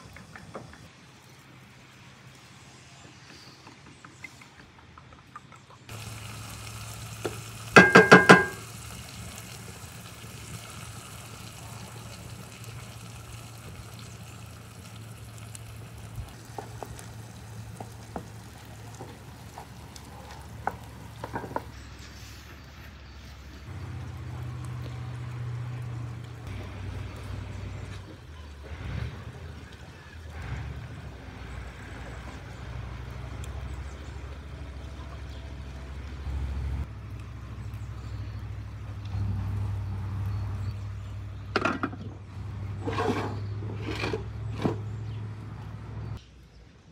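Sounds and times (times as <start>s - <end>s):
egg sizzling in a pan: 5.9s - 21.8s.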